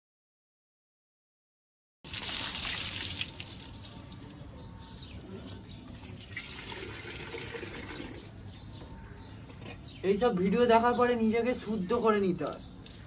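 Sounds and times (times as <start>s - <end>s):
water splashing over head: 2.1s - 4.4s, 12.4s - 13.0s
water dripping and trickling: 2.1s - 5.3s, 5.9s - 8.3s, 11.0s - 13.0s
birds chirping: 2.8s - 13.0s.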